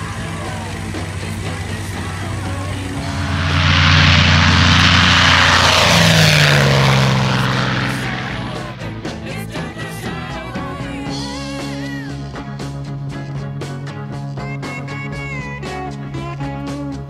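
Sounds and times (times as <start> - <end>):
propeller plane flyby: 0.1 - 9.6.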